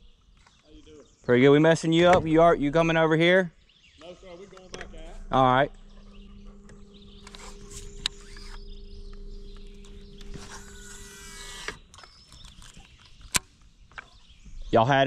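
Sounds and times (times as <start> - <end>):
electric trolling motor humming: 4.5 - 13.4
casting reel spool whirring: 5.2 - 12.8
sharp click: 6.7 - 14.1.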